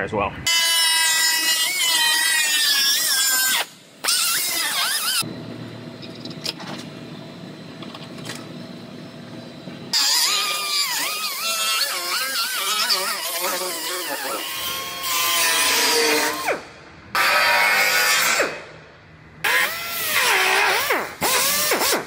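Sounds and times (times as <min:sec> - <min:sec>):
low hum: 0:03.6 - 0:11.5
pneumatic cut-off wheel whining: 0:19.4 - 0:22.0.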